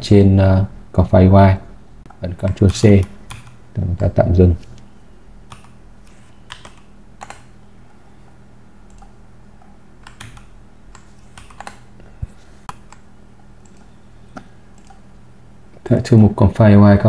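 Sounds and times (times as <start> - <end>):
steady low hum: 0.0 - 17.0
keyboard keystrokes: 5.5 - 5.8, 6.5 - 7.5, 10.0 - 11.9
mouse clicks: 5.5 - 7.6.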